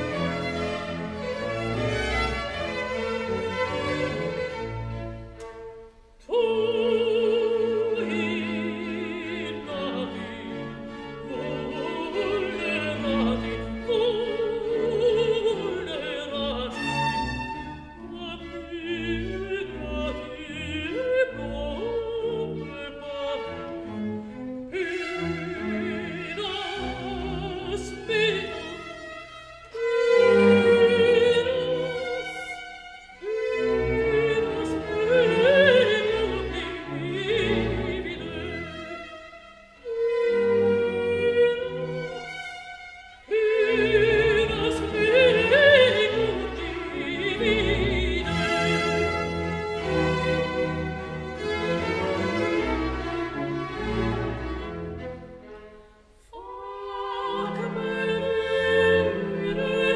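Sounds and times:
orchestra with bowed strings: 0.0 - 59.9
operatic singing voice: 6.2 - 23.8, 24.6 - 42.5, 43.2 - 49.2, 56.3 - 59.9.

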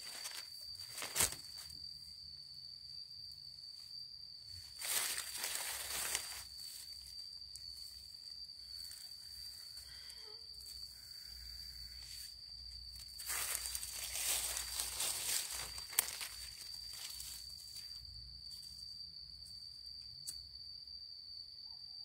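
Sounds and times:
dry leaves rustling: 0.0 - 1.8, 4.7 - 7.0, 12.9 - 18.0
high-pitched insect trill: 0.0 - 22.0.

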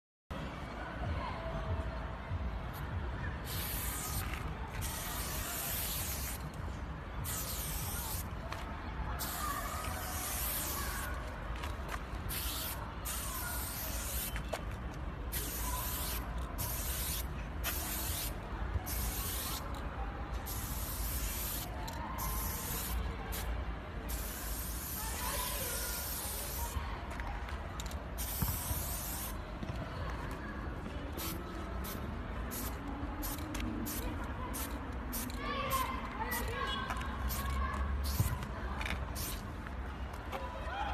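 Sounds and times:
spray can hissing: 3.4 - 6.4, 7.2 - 8.3, 9.2 - 11.2, 12.3 - 14.4, 15.3 - 19.7, 20.5 - 23.5, 24.1 - 26.7, 28.2 - 29.4, 31.2 - 36.5, 37.3 - 38.3, 39.2 - 39.4.

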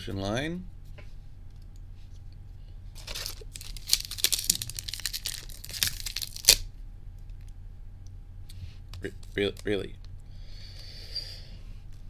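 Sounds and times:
foil wrapper crinkling and tearing: 3.0 - 6.7
sharp crack: 3.5 - 6.7.

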